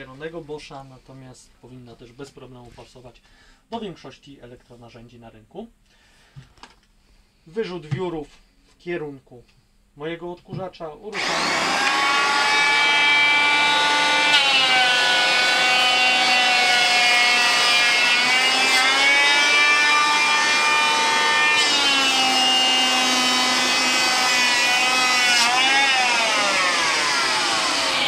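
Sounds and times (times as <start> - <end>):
workshop vacuum running: 11.1 - 28.0
electric planer shaving wood: 11.2 - 28.0.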